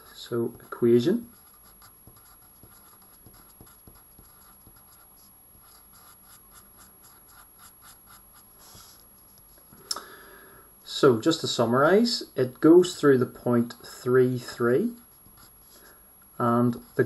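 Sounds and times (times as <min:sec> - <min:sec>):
pen scratching on paper: 0:00.5 - 0:09.3, 0:15.0 - 0:15.8, 0:16.6 - 0:17.0.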